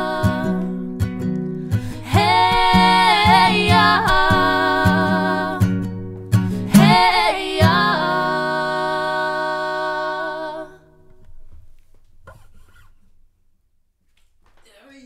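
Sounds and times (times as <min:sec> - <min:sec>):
women singing: 0:00.0 - 0:01.0, 0:01.8 - 0:05.9, 0:06.5 - 0:11.0
acoustic guitar strummed: 0:00.0 - 0:10.1.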